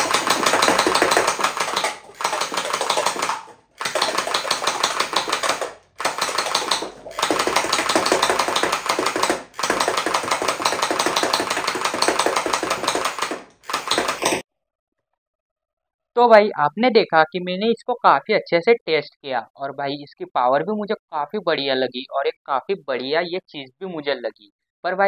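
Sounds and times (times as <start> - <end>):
toy blaster firing automatic: 0.0 - 14.4.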